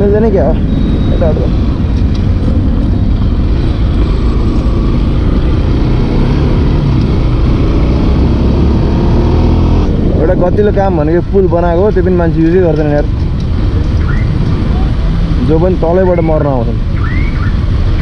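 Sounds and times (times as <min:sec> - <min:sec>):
wind rumble on microphone: 0:00.7 - 0:12.1.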